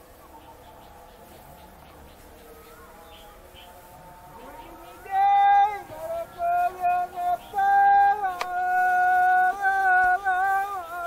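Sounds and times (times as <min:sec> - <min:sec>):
person singing long notes: 0:02.2 - 0:11.0.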